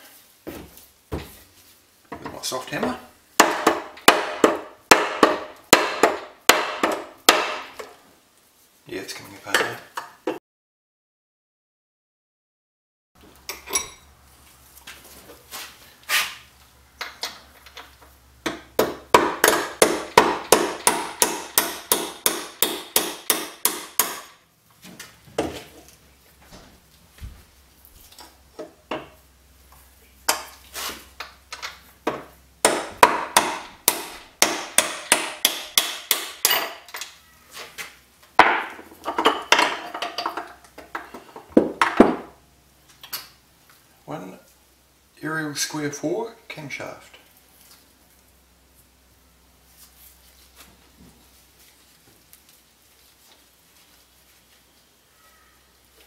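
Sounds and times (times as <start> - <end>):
hammer tapping metal: 18.4 - 24.4, 32.1 - 37.0.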